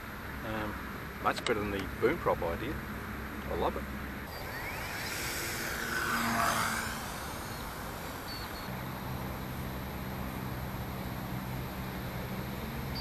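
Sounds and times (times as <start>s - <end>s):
model plane motor whining: 4.3s - 13.0s.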